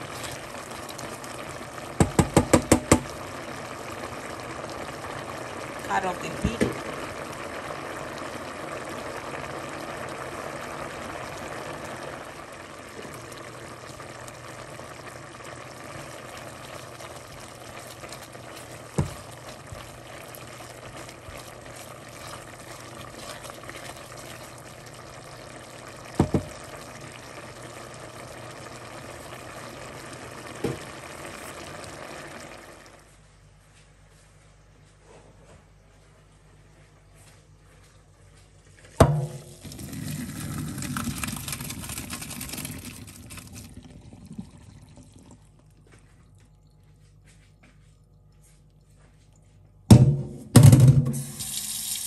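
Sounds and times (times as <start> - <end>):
water bubbling in a pot: 0.0 - 33.2, 38.9 - 50.0
spatula knocking against pot: 2.0 - 3.0.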